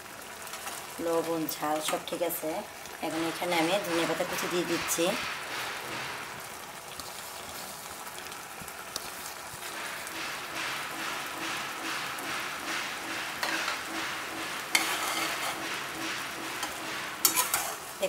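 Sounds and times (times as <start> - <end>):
curry sizzling and bubbling in a pan: 0.0 - 18.0
metal spatula clicking on pan: 14.7 - 15.6, 16.6 - 17.8.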